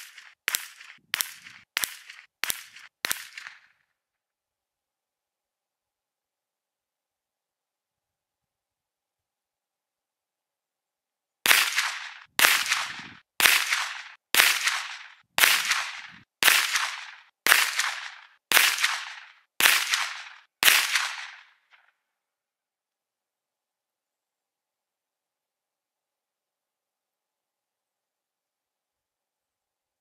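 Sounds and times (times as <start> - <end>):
rifle shots: 0.0 - 3.7, 11.5 - 21.6.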